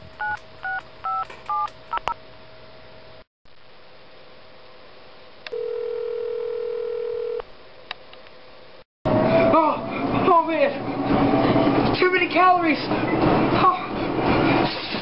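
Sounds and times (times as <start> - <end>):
telephone ringback tone: 5.5 - 7.4.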